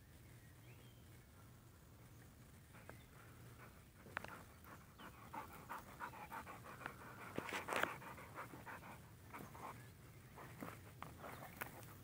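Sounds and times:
dog panting: 3.5 - 9.8.

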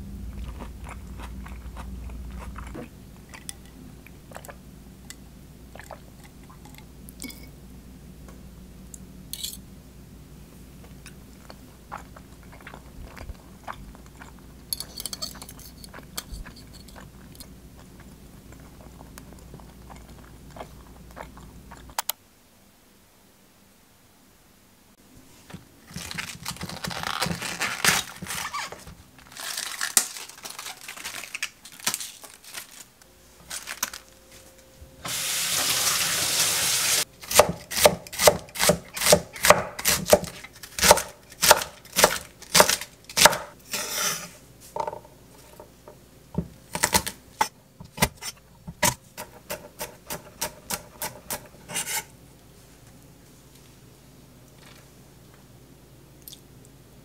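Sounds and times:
rustling handling: 25.3 - 34.7
knife chopping on wooden board: 37.3 - 43.5.

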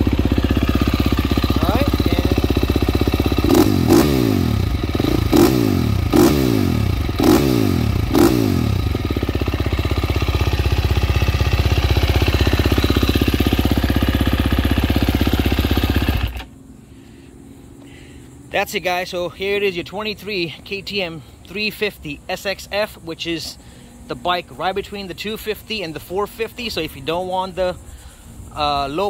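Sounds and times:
motorcycle engine revving and idling: 0.0 - 16.8.

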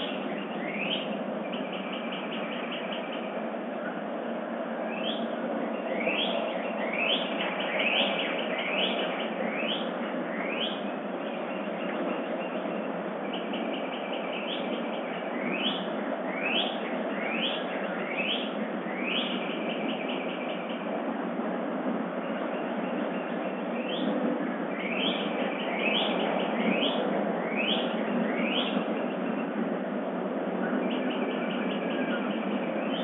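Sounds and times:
songbird whistled chirps: 0.0 - 3.3, 4.9 - 20.8, 24.8 - 29.5.

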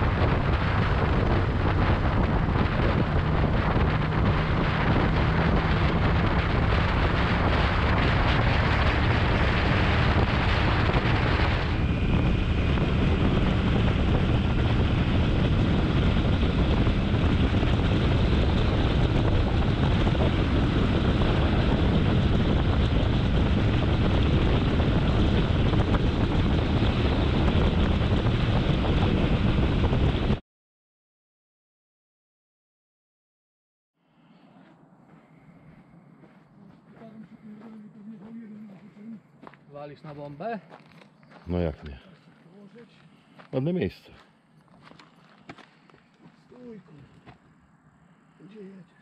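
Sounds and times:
motorcycle engine running: 0.0 - 30.4
wind noise on microphone: 0.0 - 30.4.

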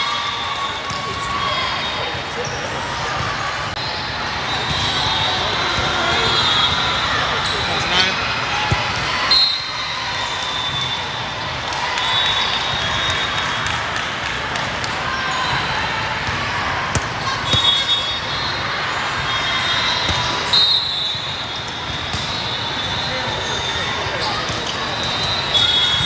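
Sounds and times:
crowd chatter echoing: 0.0 - 26.0
referee whistle blasts: 9.2 - 11.2, 17.4 - 24.4, 25.0 - 26.0.

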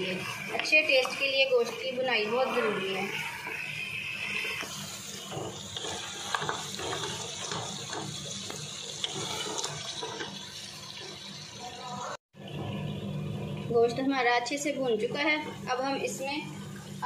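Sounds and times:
wooden spoon stirring and scraping: 0.0 - 11.3
meat sizzling in oil: 0.0 - 12.2.

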